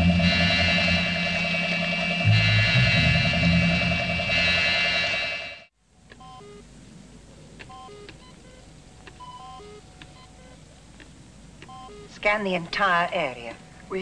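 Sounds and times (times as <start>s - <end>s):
descending electronic bleeps: 0.0s - 5.7s.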